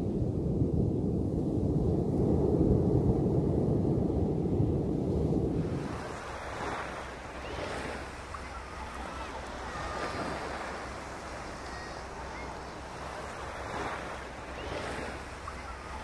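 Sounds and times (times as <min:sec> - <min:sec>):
ocean surf breaking: 0:04.8 - 0:16.0.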